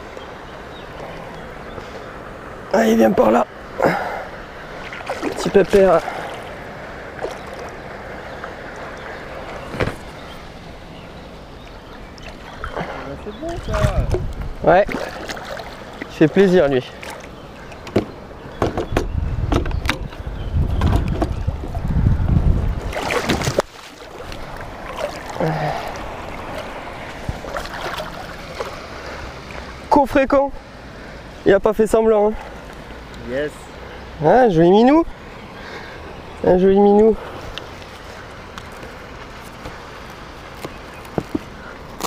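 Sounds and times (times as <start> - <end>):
water sloshing and lapping: 3.7 - 18.2, 22.6 - 29.9
wind rumbling on microphone: 4.6 - 16.0, 17.7 - 29.8.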